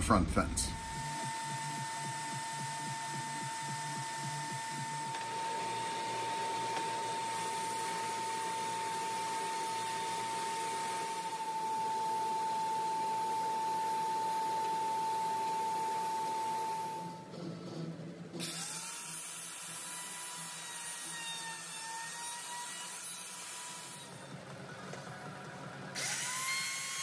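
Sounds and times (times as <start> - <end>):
sander high whine: 0.0 - 17.3
wood being sanded: 0.8 - 11.2.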